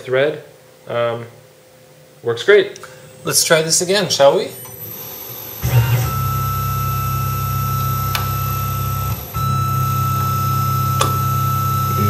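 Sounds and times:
mill spindle whining: 3.1s - 12.0s.

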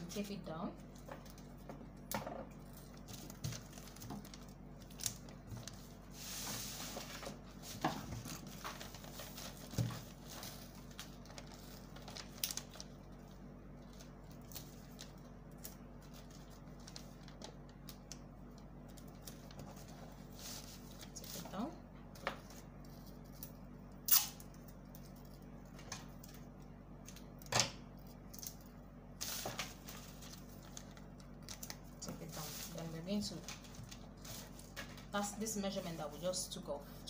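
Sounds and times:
paper rustling and sliding: 5.5s - 12.8s.

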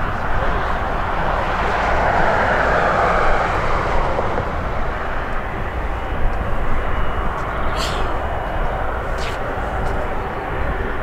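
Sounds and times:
jet engines roaring: 0.0s - 11.0s.

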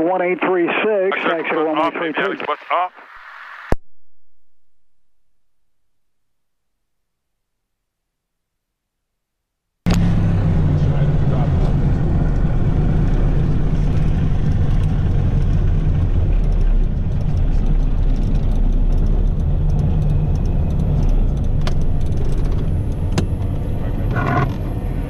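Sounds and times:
twin piston engines droning: 9.9s - 25.0s.

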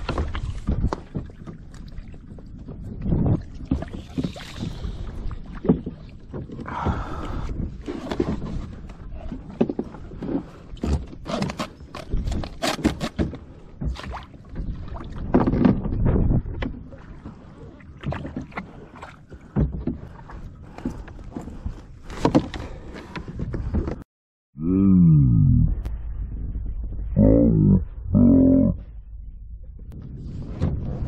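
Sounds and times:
water splashing and sloshing: 0.0s - 24.1s.

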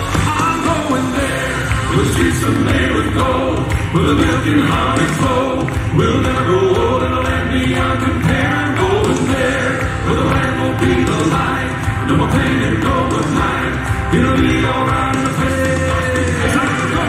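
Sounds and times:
accompaniment music: 0.0s - 17.0s
male quartet singing in harmony: 0.8s - 17.0s.

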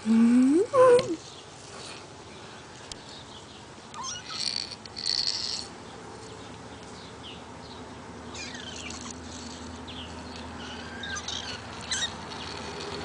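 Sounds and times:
kittens mewing: 3.9s - 5.7s, 8.3s - 9.8s, 10.5s - 13.0s.

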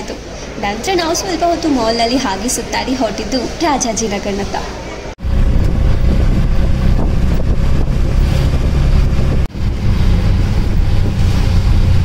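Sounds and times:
rickshaw engine running: 5.2s - 12.0s
wind buffeting microphone: 5.2s - 12.0s.

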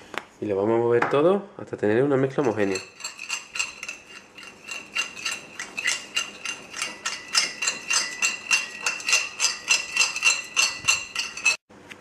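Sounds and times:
metal spoon clinking on ceramic plate: 2.4s - 11.6s.

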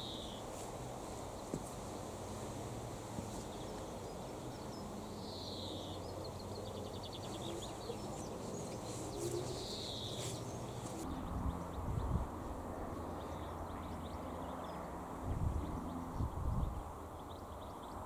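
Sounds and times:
bird trill: 0.0s - 0.4s
distant songbird singing: 0.0s - 18.0s.

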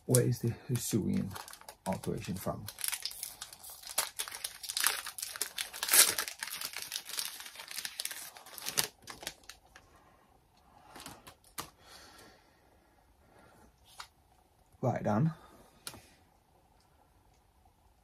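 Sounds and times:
foil wrapper tearing and crinkling: 1.1s - 9.8s.

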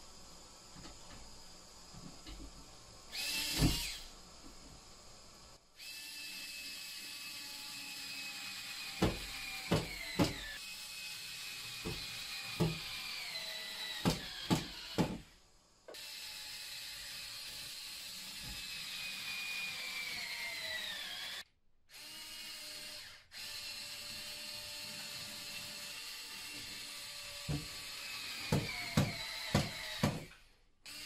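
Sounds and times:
cordless drill running: 3.1s - 4.1s, 16.0s - 30.0s.

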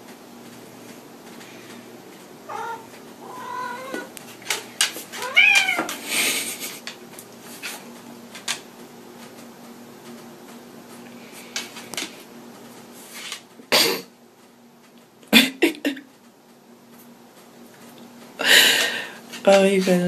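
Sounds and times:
cat meowing: 2.5s - 4.1s, 5.2s - 5.9s.

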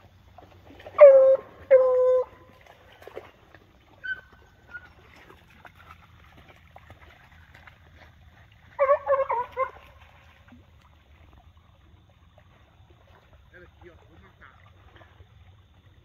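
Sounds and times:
hounds yelping barks: 0.9s - 2.4s, 4.0s - 5.0s, 8.8s - 10.0s.

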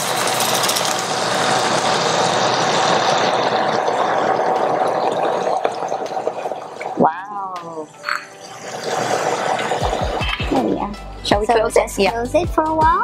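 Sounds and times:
sauce sizzling in a frying pan: 0.0s - 6.6s, 7.4s - 10.8s.

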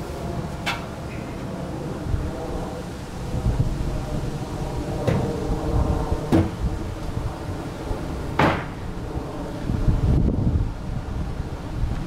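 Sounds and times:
wooden boards knocking on truck bed: 6.3s - 6.6s, 8.4s - 8.7s.

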